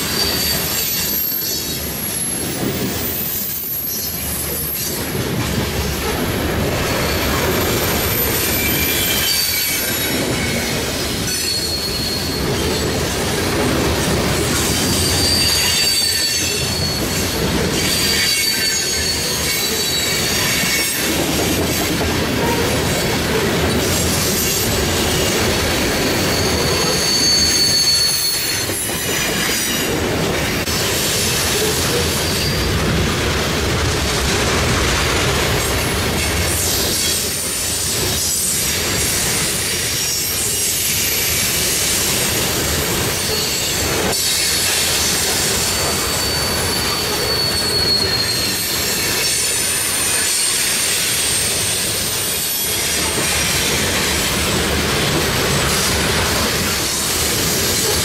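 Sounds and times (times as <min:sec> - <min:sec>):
wheel squeal: 0:00.0 - 0:05.0, 0:06.9 - 0:13.2, 0:14.6 - 0:21.1, 0:22.4 - 0:30.0, 0:43.1 - 0:54.2
train wheels rumbling on rail: 0:00.0 - 0:58.0.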